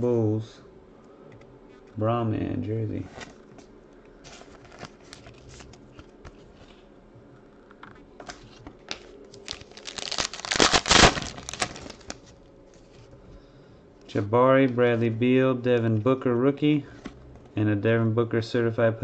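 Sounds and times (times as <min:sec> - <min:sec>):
foil wrapper crinkling: 0:08.9 - 0:12.4.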